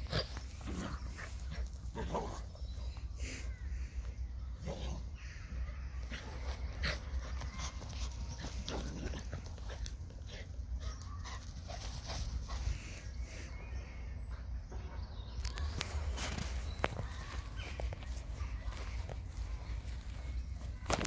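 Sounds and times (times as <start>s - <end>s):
rustling in grass: 15.4s - 21.0s.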